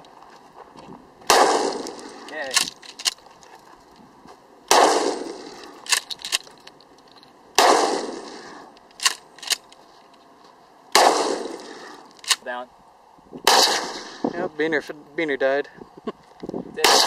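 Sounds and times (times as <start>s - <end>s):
shotgun shots: 1.3s - 2.9s, 4.7s - 6.1s, 7.6s - 9.6s, 10.9s - 12.4s, 13.4s - 14.5s, 16.8s - 17.0s
shotgun slide racking clacks: 8.9s - 9.8s.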